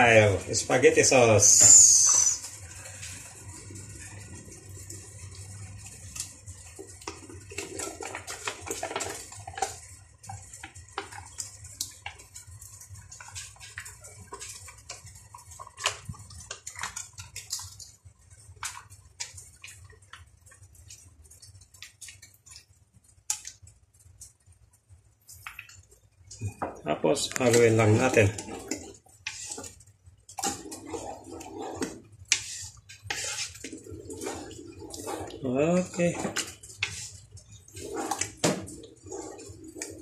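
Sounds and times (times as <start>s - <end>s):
thick sauce squelching: 27.4s - 40.0s.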